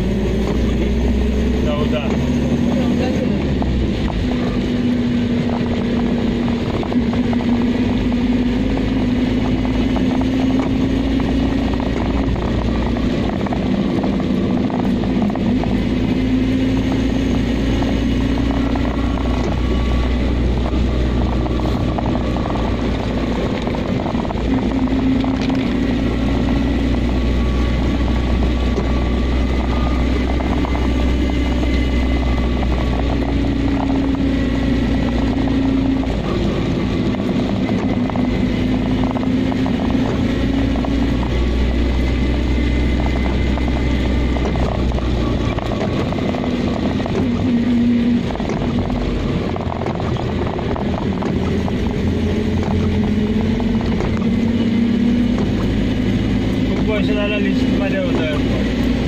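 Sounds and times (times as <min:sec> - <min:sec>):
car engine drone: 0:00.0 - 0:59.0
tyre noise on wet road: 0:00.0 - 0:59.0.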